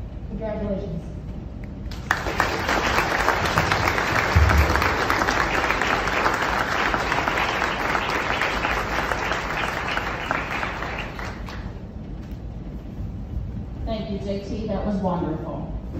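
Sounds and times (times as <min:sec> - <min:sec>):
audience applauding: 0:01.9 - 0:11.8.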